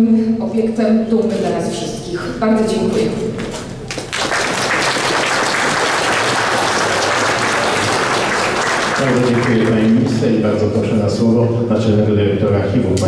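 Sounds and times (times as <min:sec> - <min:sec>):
audience applauding: 0:03.9 - 0:10.3.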